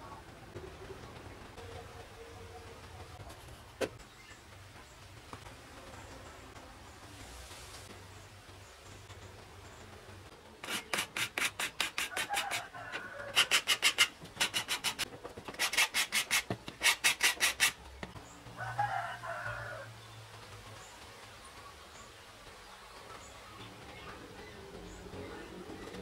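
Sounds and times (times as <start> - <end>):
sandpaper rasping on wood: 10.6 - 12.7, 13.3 - 17.8.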